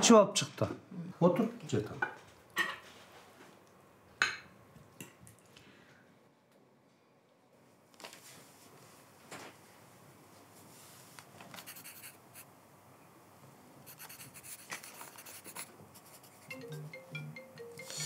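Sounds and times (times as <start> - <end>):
pen scratching on paper: 11.6 - 12.5, 13.9 - 16.5.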